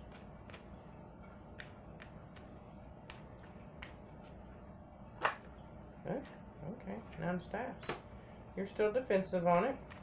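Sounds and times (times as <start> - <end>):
cards being shuffled: 0.0 - 4.6, 9.5 - 10.0.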